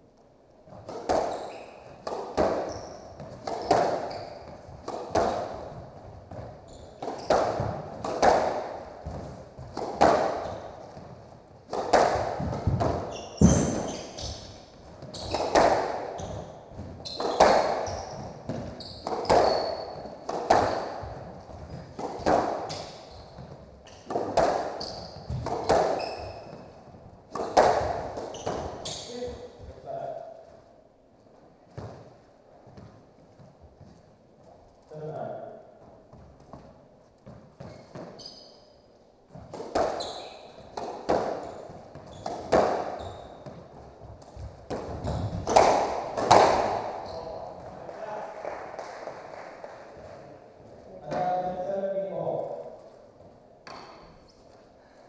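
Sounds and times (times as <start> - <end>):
squash ball hits echoing: 0.7 - 29.6, 36.1 - 38.2, 39.3 - 47.8
shoes squeaking on hardwood floor: 0.7 - 30.6, 31.2 - 34.9, 35.8 - 47.8, 52.8 - 55.0.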